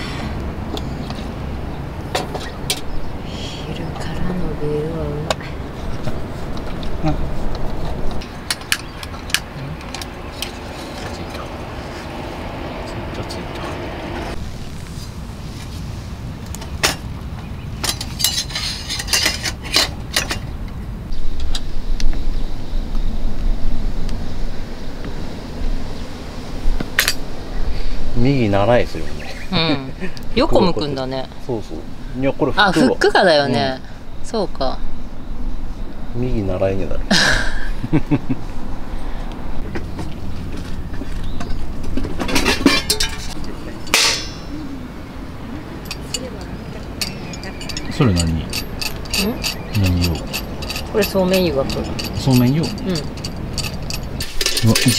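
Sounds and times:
ringing metal clank: 0:42.2 - 0:44.6, 0:47.0 - 0:54.9
metal lantern clinking: 0:42.3 - 0:44.6, 0:45.8 - 0:54.9.

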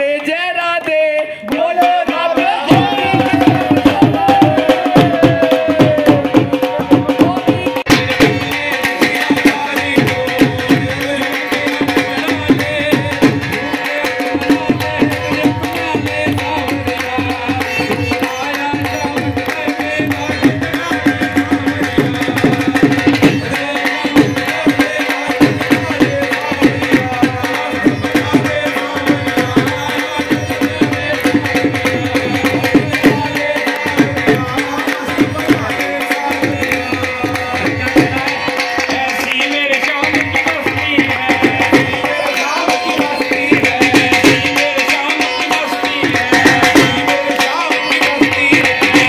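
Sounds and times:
hands clapping: 0:00.0 - 0:02.0
voices singing: 0:00.0 - 0:49.0
hand drum beating: 0:01.5 - 0:28.6.

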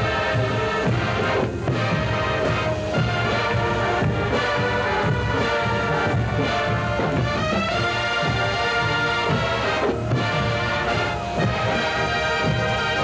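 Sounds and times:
marching band brass playing jazz: 0:00.0 - 0:13.0.

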